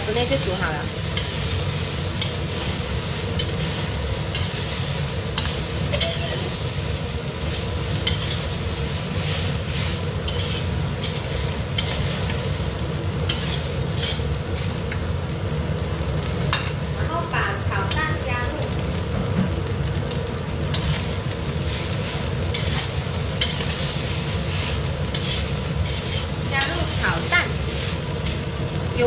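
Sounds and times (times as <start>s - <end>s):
rice sizzling: 0.0s - 29.0s
metal spatula scraping a wok: 1.0s - 14.7s, 20.7s - 28.5s.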